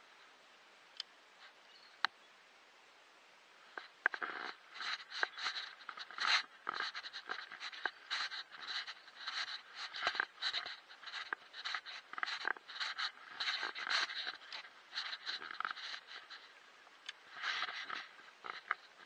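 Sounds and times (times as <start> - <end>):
close rustling: 3.7 - 19.0
footsteps on dry grass and leaves: 4.1 - 16.5, 17.2 - 19.0.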